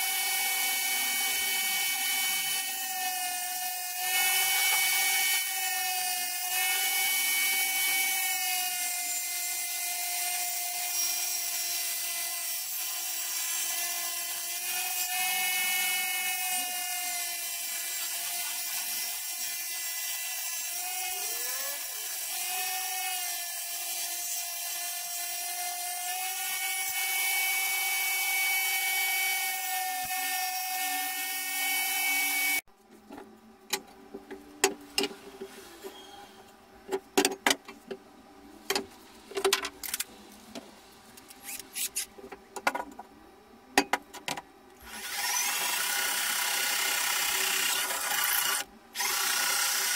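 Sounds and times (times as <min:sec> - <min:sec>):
table saw whining: 0:00.0 - 0:32.6.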